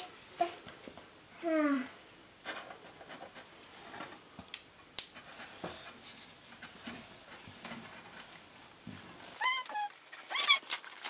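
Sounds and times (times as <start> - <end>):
soft rubbing of wooden bars: 5.2 - 10.5.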